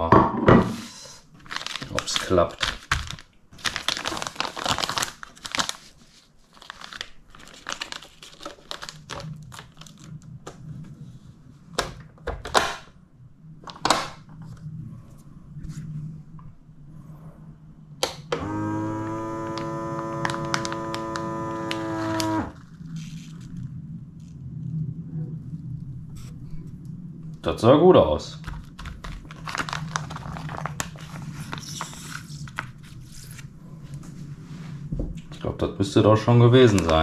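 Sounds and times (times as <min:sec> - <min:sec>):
plastic bag crinkling: 0:01.3 - 0:10.5, 0:19.2 - 0:24.4, 0:28.3 - 0:33.6, 0:36.3 - 0:37.0
vacuum pump droning hum: 0:14.5 - 0:37.0.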